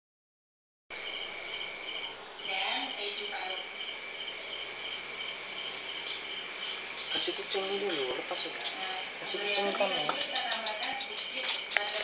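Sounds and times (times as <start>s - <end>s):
crickets chirping: 0.9s - 12.0s
pulsing insect chirp: 0.9s - 12.0s.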